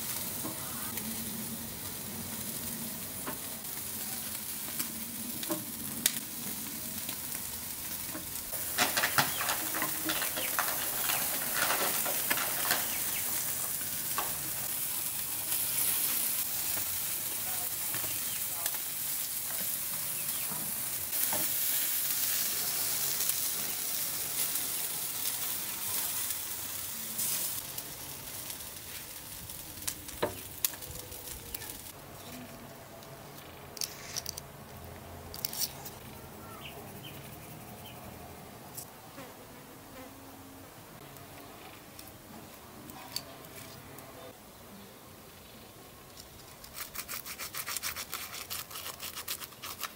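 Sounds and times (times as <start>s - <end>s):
food sizzling on grill: 0.0s - 34.8s
sharp pops of grilling food: 4.6s - 26.6s, 27.4s - 31.9s.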